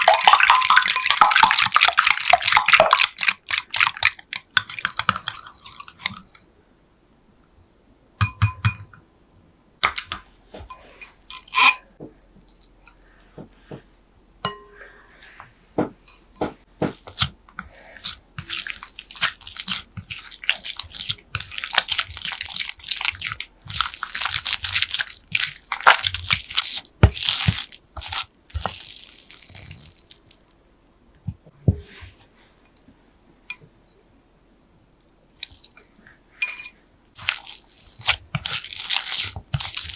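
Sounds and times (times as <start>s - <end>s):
spatula squelching dough in bowl: 16.5s - 30.2s, 35.3s - 39.9s.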